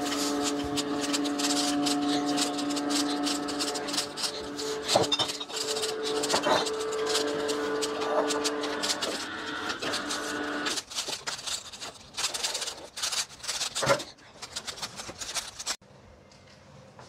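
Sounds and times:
juicer motor humming: 0.0s - 11.3s.

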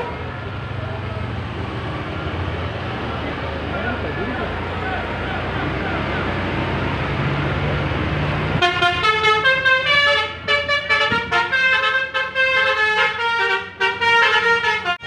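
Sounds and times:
multi-tone musical bus horn: 0.0s - 0.3s, 8.6s - 15.0s
bus engine running: 0.0s - 15.0s.

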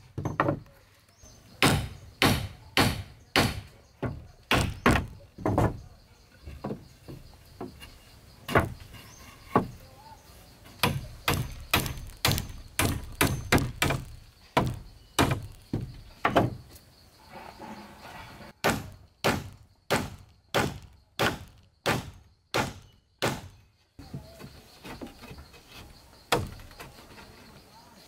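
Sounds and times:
tool striking wood: 1.6s - 5.8s, 8.5s - 8.8s, 10.8s - 16.6s, 18.6s - 23.5s, 26.3s - 26.8s.

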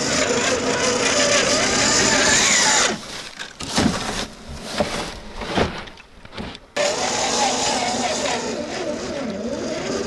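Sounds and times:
electric motor whining: 0.0s - 3.0s, 6.8s - 10.0s.

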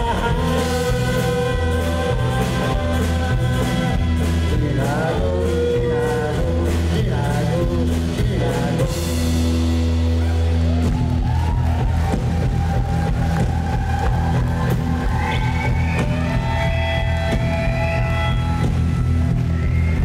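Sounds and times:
man singing: 0.0s - 9.8s
bass guitar: 0.0s - 20.0s
drum kit: 0.0s - 20.0s.

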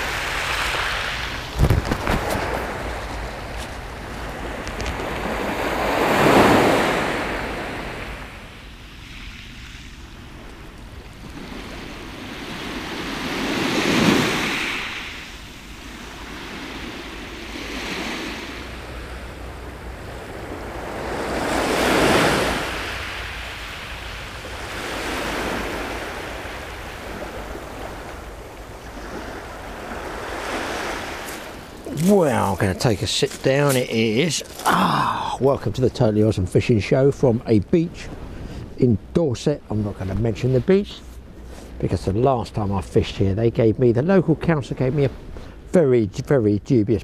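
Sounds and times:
small waves washing on shingle: 0.0s - 7.8s, 20.4s - 35.1s.

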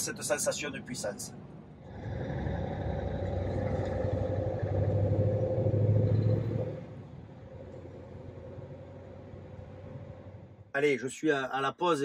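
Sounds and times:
diesel truck engine under load: 1.8s - 10.7s.

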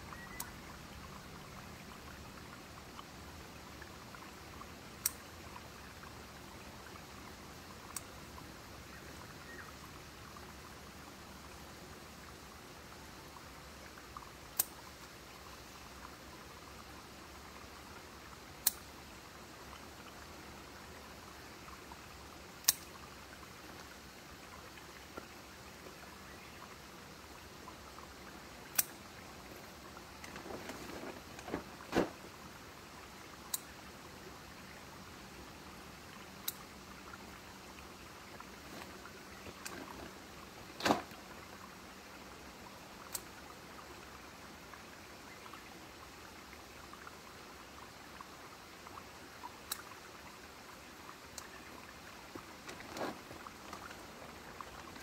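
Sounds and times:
foliage rustling: 28.7s - 32.5s, 38.4s - 41.3s, 51.5s - 55.0s.

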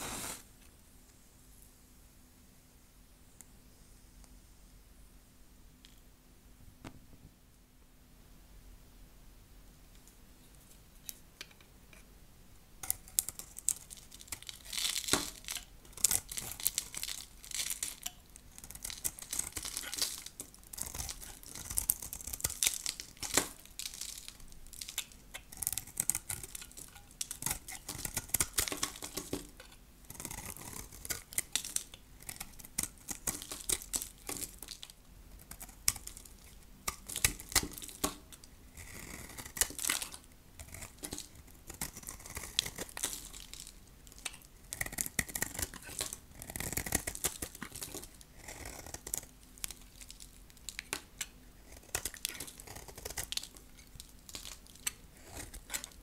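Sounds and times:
hard soap crackling and crunching: 12.8s - 56.0s.

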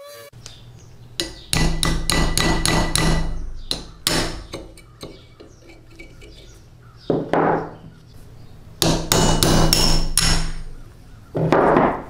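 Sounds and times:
hammer tapping metal punch: 1.2s - 6.5s, 8.8s - 10.7s.

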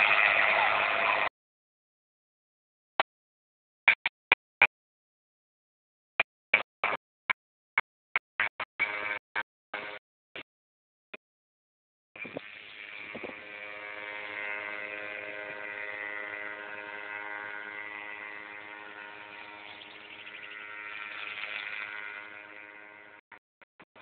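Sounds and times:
paramotor engine and propeller drone: 0.0s - 1.3s, 8.4s - 9.2s, 9.8s - 10.0s, 12.2s - 24.0s.

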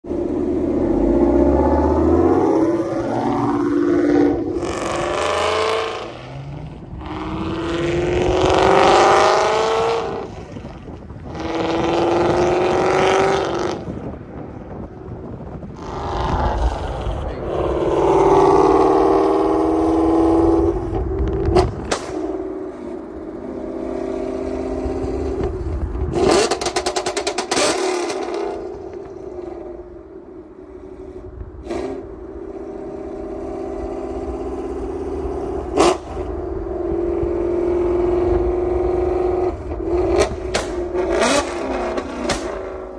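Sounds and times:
car engine accelerating hard: 0.0s - 42.9s
sharp exhaust pops: 20.9s - 22.3s, 40.1s - 42.7s.

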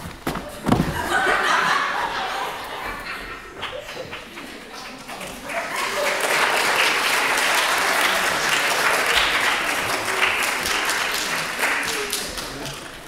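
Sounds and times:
audience applauding: 3.5s - 13.0s.

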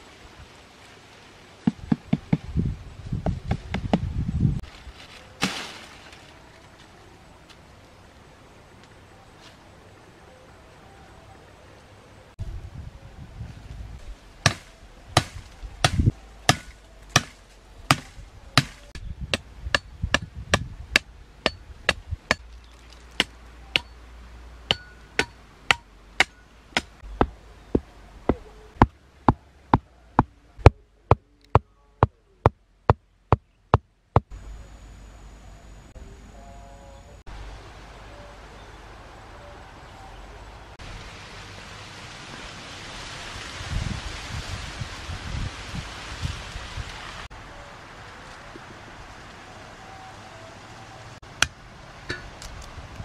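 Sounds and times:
stone pounding wooden stakes: 14.4s - 22.5s, 24.7s - 30.3s.

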